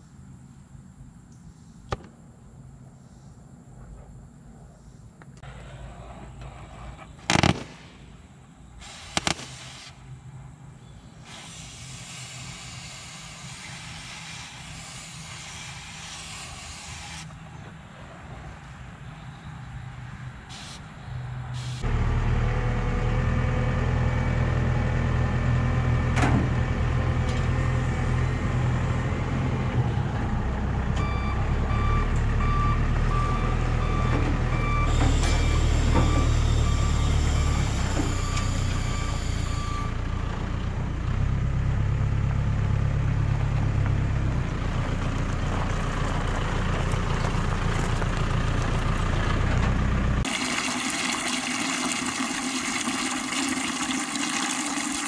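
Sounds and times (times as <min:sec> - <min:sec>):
diesel engine running: 0:18.8 - 0:50.5
reversing alarm beeping: 0:31.0 - 0:40.2.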